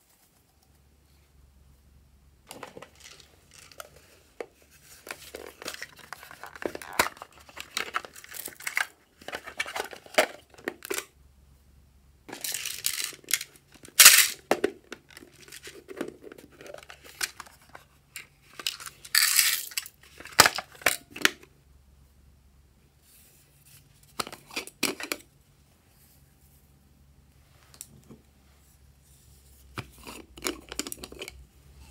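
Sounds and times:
crinkly plastic crackling: 2.5 - 4.2, 4.9 - 11.1, 12.3 - 21.4
plastic containers clicking and knocking: 2.5 - 11.1, 29.8 - 31.4.

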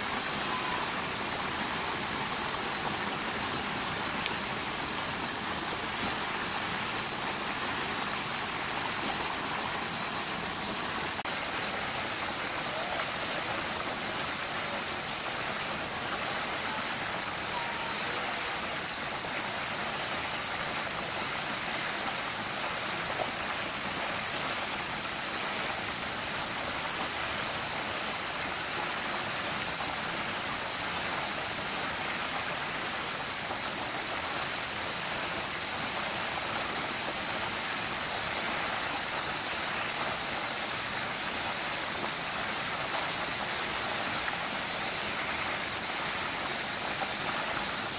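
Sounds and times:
cicada chorus droning: 0.0 - 47.9.

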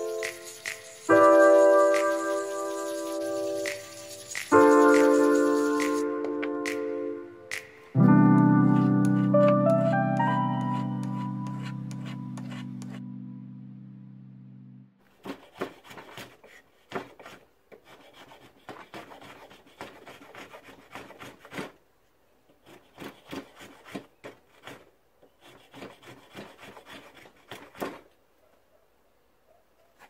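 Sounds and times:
draw-knife scraping wood: 8.6 - 13.0, 15.2 - 21.8, 22.6 - 28.1.

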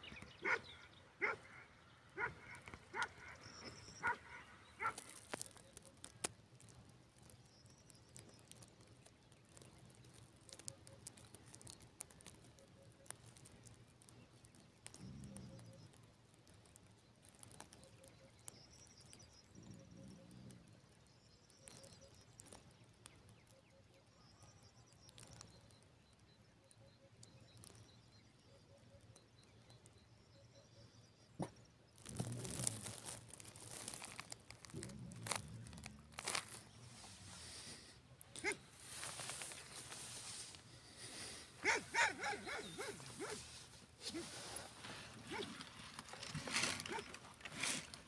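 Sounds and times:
bird chirps: 0.0 - 11.8, 17.1 - 47.8
soft ticks: 4.8 - 23.7
low rustles: 31.9 - 48.0.

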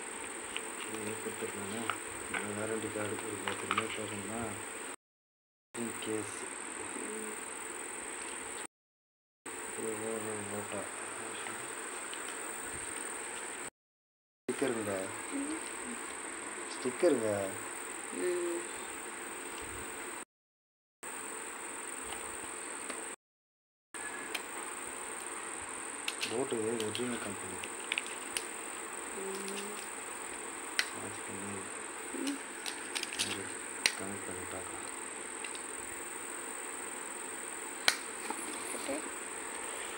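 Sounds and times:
insects trilling: 0.0 - 5.0, 5.8 - 8.7, 9.5 - 13.7, 14.5 - 20.2, 21.1 - 23.2, 24.0 - 39.9
steady high-pitched whine: 5.8 - 8.7, 9.5 - 13.7, 24.0 - 39.9.

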